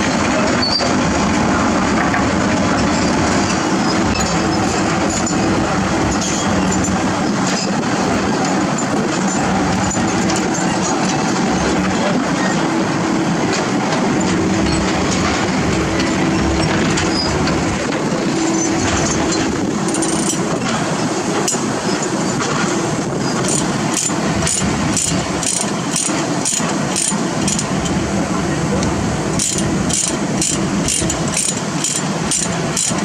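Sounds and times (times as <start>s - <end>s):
metal chain clinking and rattling: 19.9s - 20.5s, 23.4s - 27.9s, 29.4s - 33.0s.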